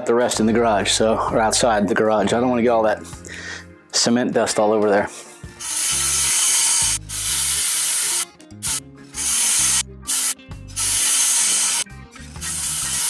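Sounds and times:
circular saw cutting board: 5.6 - 13.0.

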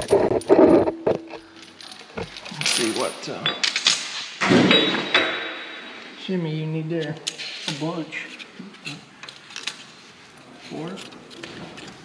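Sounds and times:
metal parts clinking and rattling: 0.0 - 6.0, 8.8 - 9.9.

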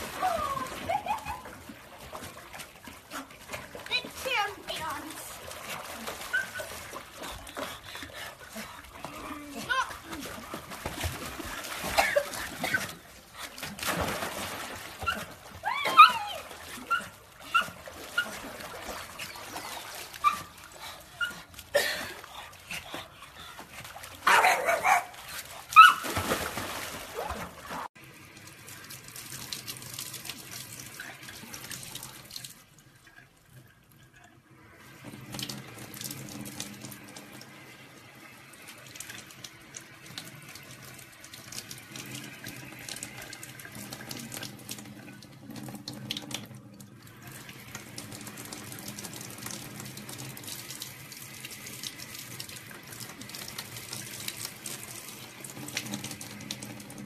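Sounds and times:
dog whimpering and yelping: 6.3 - 6.7, 15.0 - 18.4
loud splashes in water: 13.8 - 19.6, 25.8 - 27.9.

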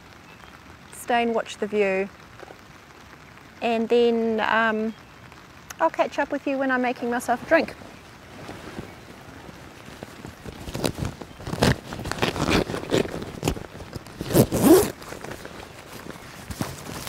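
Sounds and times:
zipper being pulled: 10.4 - 17.0.

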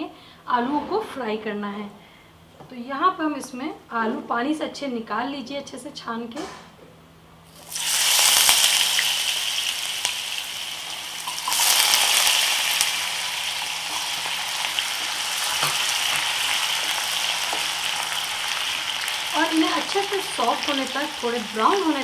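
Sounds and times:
potatoes sizzling in hot oil: 7.5 - 22.0.

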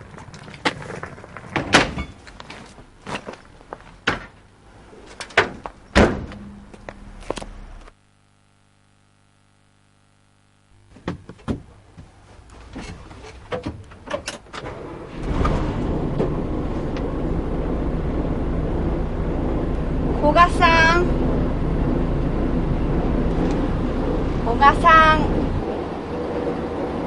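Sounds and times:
coach engine rumble: 12.3 - 27.0.

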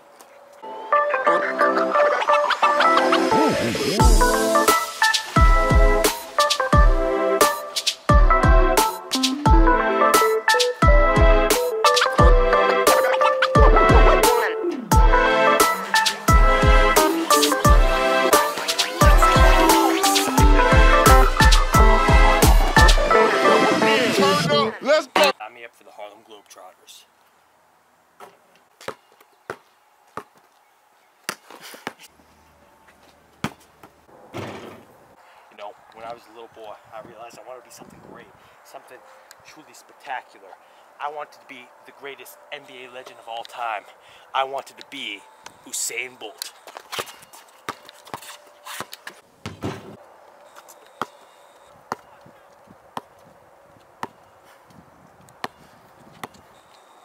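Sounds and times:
basketball bouncing on concrete: 28.2 - 30.5, 33.4 - 34.0, 47.0 - 50.0, 51.9 - 52.1, 53.0 - 53.3, 54.0 - 54.2, 55.4 - 56.4.

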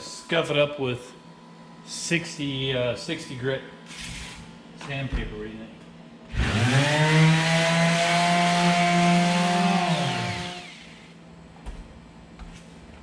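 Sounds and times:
electric sander motor: 6.3 - 11.1.

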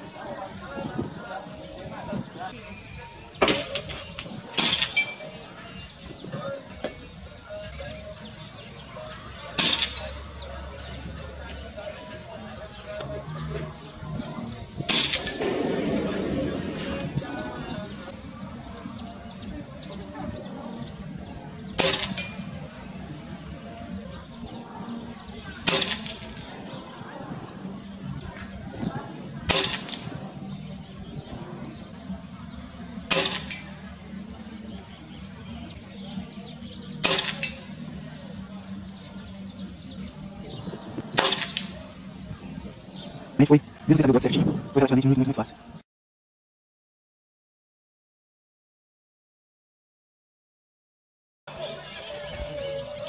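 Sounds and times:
high-pitched drone with chirps: 0.0 - 45.8, 51.5 - 53.0
pellet clinking on metal target: 3.5 - 5.3
air rifle shots: 4.6 - 5.2, 9.6 - 10.1, 14.9 - 18.0, 21.8 - 22.5, 25.6 - 26.4, 29.5 - 30.2, 33.1 - 33.7, 37.0 - 37.6, 41.2 - 41.8
pellet striking metal target: 9.6 - 10.1, 21.8 - 22.4, 25.7 - 26.2, 29.5 - 30.0, 33.1 - 33.7, 37.0 - 37.6, 41.2 - 41.7
air rifle shot crack: 14.9 - 17.8, 41.2 - 41.8.

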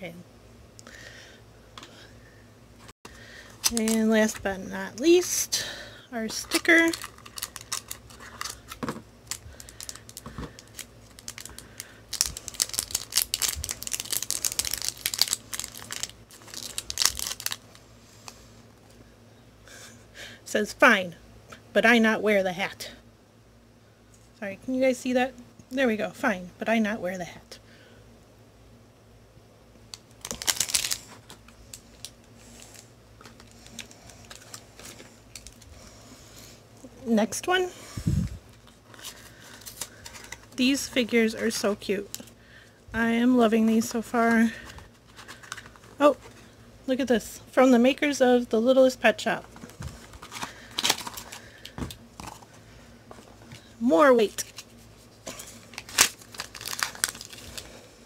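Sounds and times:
plastic packet crinkling: 3.6 - 4.5, 6.3 - 17.8, 30.0 - 35.7, 45.0 - 46.2, 49.5 - 52.4, 54.2 - 57.8.

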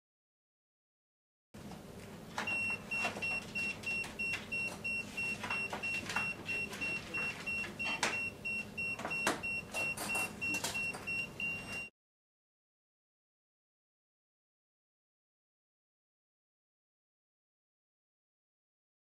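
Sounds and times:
voltage detector beeping: 2.5 - 11.9.

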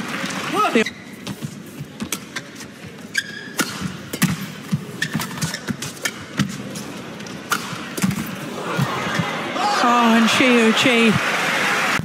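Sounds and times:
shoes squeaking on floor: 0.8 - 3.8, 4.8 - 6.3
racket striking shuttlecock: 3.5 - 6.6, 7.5 - 8.3.

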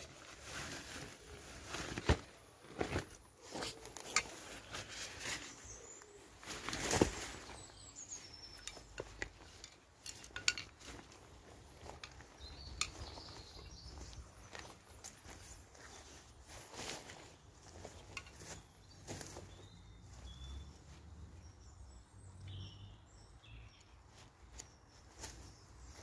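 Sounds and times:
hammock fabric rustling and flapping: 0.0 - 19.6
footsteps on leaf litter: 0.0 - 21.3
poles clicking and knocking: 8.7 - 11.2.

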